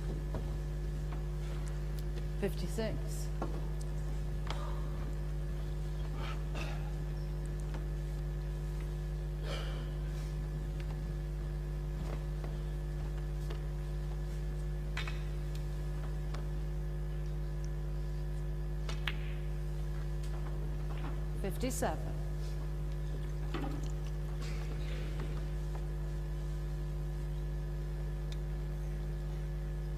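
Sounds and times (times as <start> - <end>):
low electrical hum: 0.0 - 29.9
snooker balls clicking: 18.4 - 21.3.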